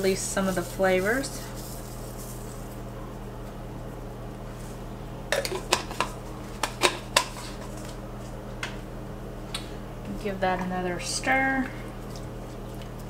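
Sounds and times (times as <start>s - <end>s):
steady low hum: 0.0s - 13.0s
kitchen utensils clinking: 5.3s - 7.7s.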